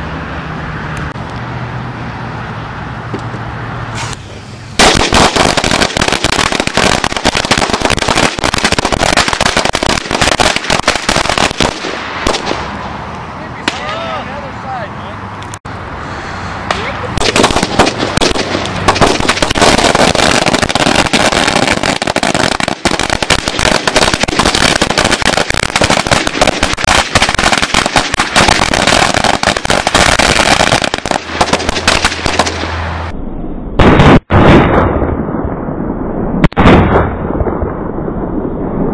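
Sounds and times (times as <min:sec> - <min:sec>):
loud single blasts: 0:03.6 - 0:14.5, 0:15.8 - 0:33.2
firecracker string bangs: 0:04.8 - 0:12.7, 0:16.7 - 0:32.8.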